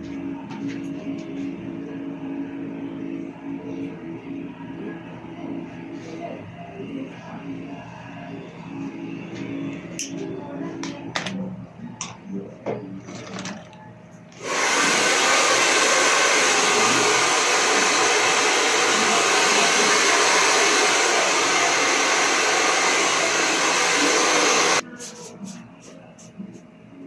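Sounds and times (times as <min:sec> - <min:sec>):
hair dryer running: 0:14.4 - 0:24.8.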